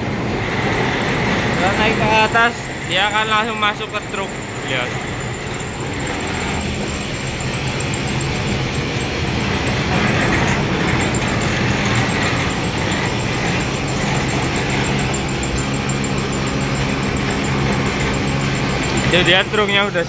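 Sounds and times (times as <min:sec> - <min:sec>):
conveyor machinery humming: 0:00.0 - 0:20.0.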